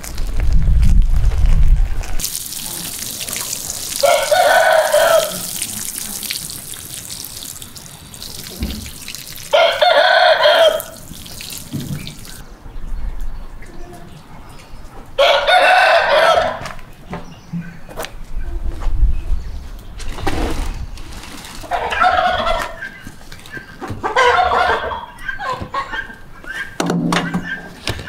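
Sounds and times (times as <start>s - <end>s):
watering can spraying: 2.2s - 12.4s
rooster crowing: 4.0s - 5.5s, 9.5s - 11.0s, 15.2s - 16.8s.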